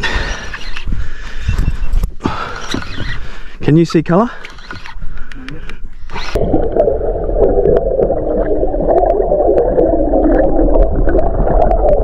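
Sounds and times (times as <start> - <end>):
muffled underwater rush: 6.4 - 12.0.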